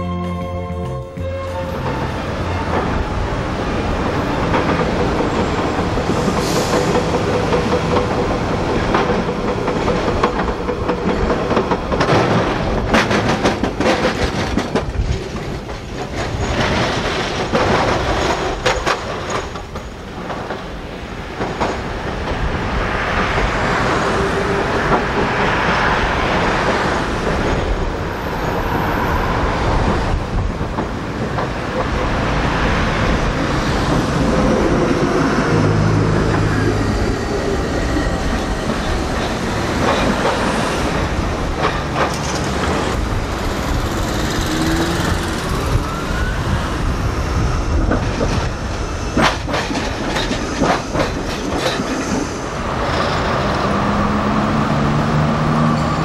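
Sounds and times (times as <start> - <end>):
tram wheels rumbling on rails: 0.8 - 56.0
wheels clicking over rail joints: 2.3 - 28.0, 29.8 - 46.6, 47.2 - 53.7.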